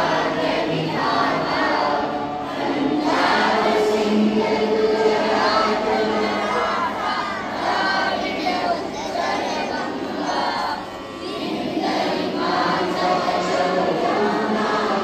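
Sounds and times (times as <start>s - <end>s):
children singing together: 0.0s - 15.0s.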